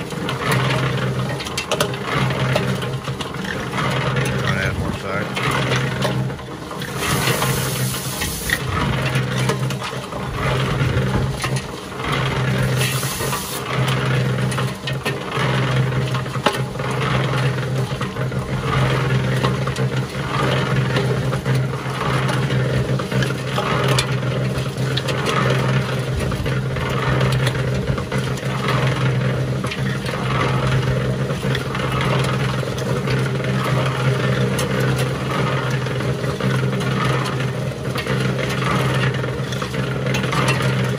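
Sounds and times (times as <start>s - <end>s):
cement mixer running: 0.0s - 40.9s
hose spraying water: 6.8s - 9.4s, 12.1s - 13.8s.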